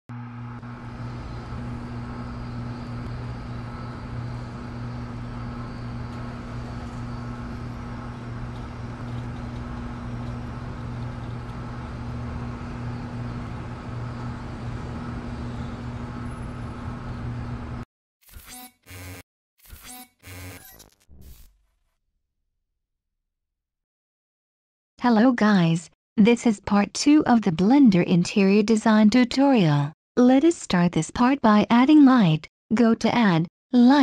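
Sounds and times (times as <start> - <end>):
low background hum: 0.2 - 17.8.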